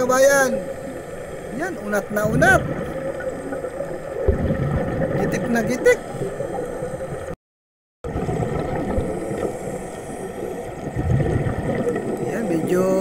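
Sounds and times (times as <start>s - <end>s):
muffled underwater rumbling hiss: 0.0s - 7.4s, 8.1s - 13.0s.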